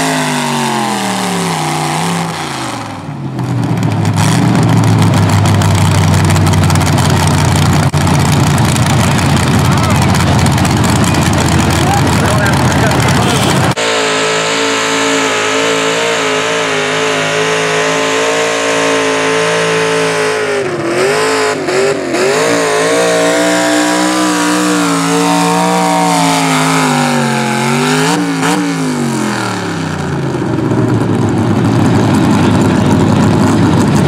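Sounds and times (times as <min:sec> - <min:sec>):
truck engine at full throttle: 0:00.0 - 0:34.0.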